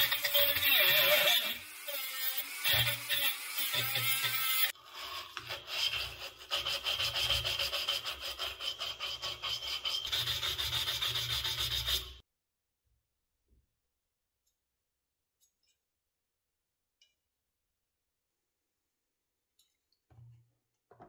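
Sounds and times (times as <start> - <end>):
scratching on metal: 4.2 - 12.2.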